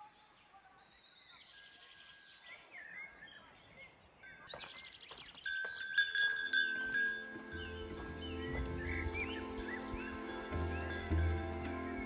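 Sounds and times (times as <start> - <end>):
faint outdoor background noise: 0.0 - 12.0
small birds chirping and trilling: 0.0 - 12.0
chime-like background music: 5.4 - 12.0.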